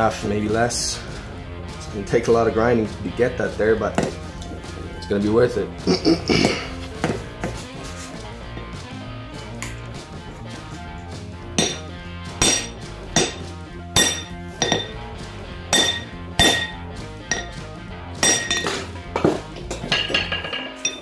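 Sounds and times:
background music: 0:00.0 - 0:21.0
hammer ringing on hot metal: 0:11.6 - 0:13.4, 0:14.0 - 0:15.0, 0:15.7 - 0:17.6, 0:18.2 - 0:18.8.

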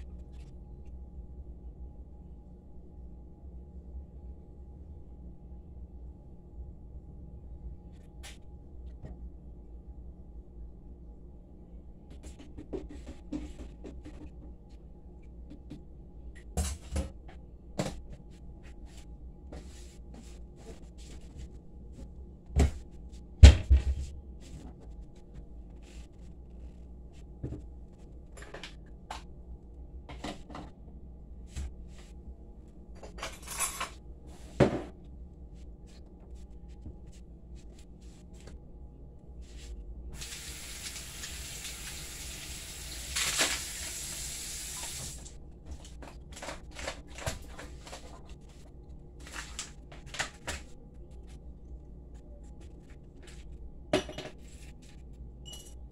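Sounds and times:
kitchen tap running: 0:40.2 - 0:45.3.

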